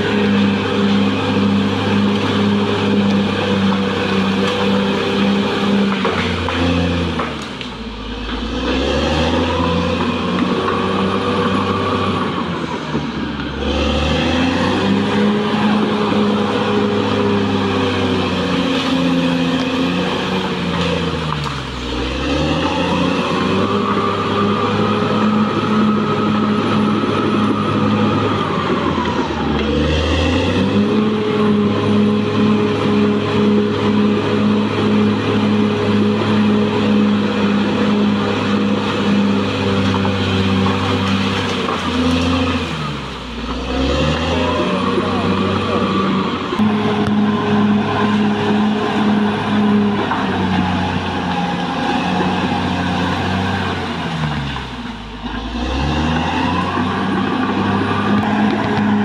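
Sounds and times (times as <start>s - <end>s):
bulldozer diesel engine under load: 0.0s - 59.0s.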